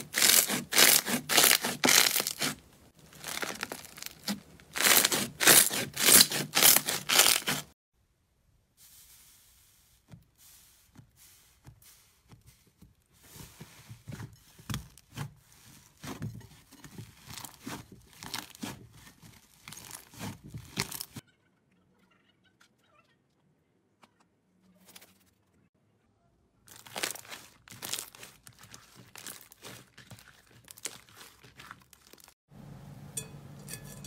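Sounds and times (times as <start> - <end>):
slime crackling and crunching: 0.0 - 7.8, 17.0 - 21.2, 26.7 - 32.4.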